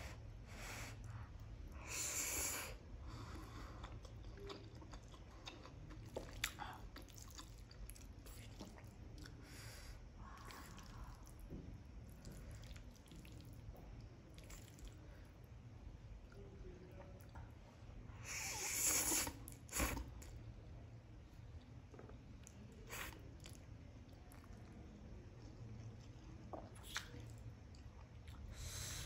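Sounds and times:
wet chewing with mouth clicks: 3.1 - 9.5, 10.2 - 15.2, 21.6 - 28.9
noodle slurping: 18.3 - 20.1.

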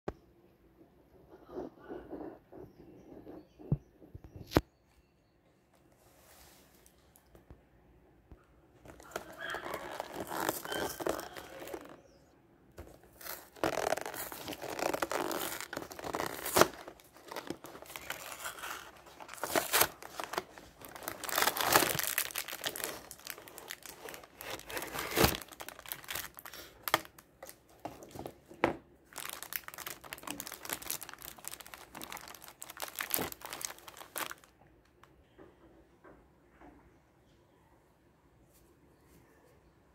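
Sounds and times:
packaging crinkling and rustling: 8.8 - 12.2, 12.8 - 34.6.

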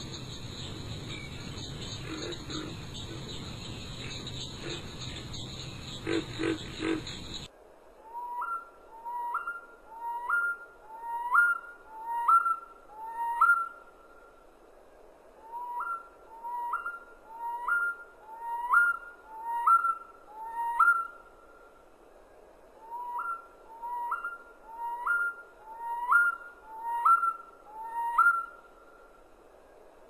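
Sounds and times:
insects chirring: 0.0 - 7.5.

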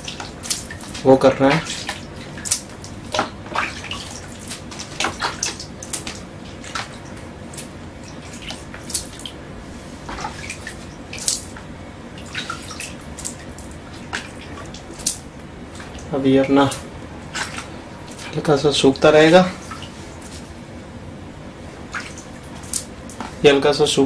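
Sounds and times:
water splashing on a wall: 0.0 - 9.4, 10.0 - 18.4
steady low hum: 0.0 - 24.0.

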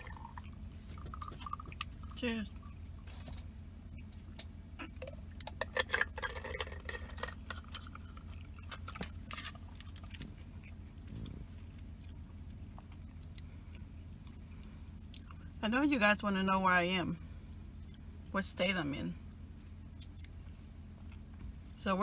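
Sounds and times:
gulping and swallowing: 0.0 - 3.1, 4.8 - 13.9
steady low hum: 0.0 - 22.0.

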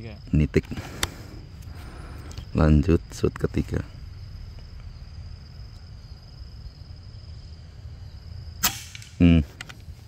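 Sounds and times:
air rifle shot: 8.6 - 9.2.

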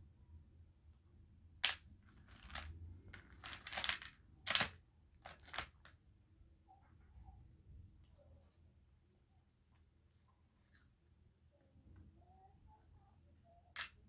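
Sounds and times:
crayfish shells cracking: 3.4 - 5.6.

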